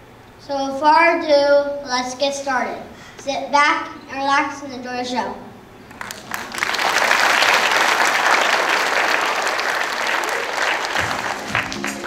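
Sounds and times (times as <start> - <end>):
children clapping: 5.9 - 12.0.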